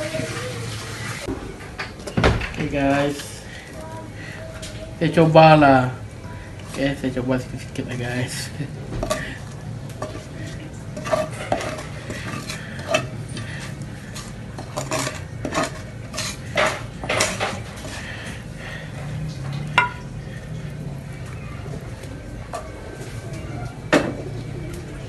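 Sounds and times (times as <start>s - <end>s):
wooden spatula scraping pan: 9.0s - 19.9s
clinks of glass dish: 19.8s - 20.0s.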